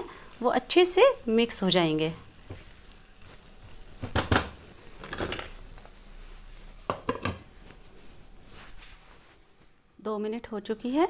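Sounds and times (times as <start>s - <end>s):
wooden spatula knocking on pan: 6.9s - 7.5s.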